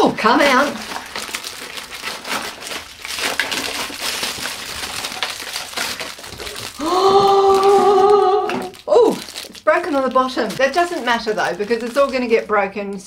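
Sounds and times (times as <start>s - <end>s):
cellophane bag crinkling: 0.2s - 13.0s.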